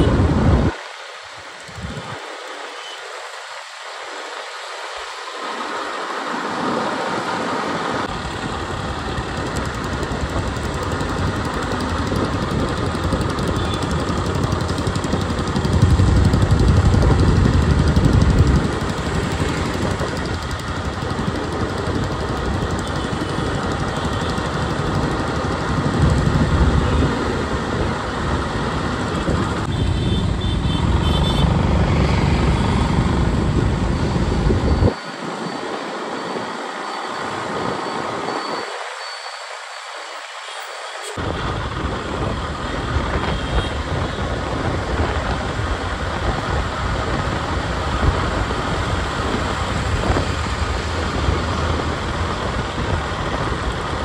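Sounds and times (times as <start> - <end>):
wind buffeting microphone: 0.0 - 0.8, 8.0 - 35.0, 41.2 - 54.0
road traffic: 0.0 - 54.0.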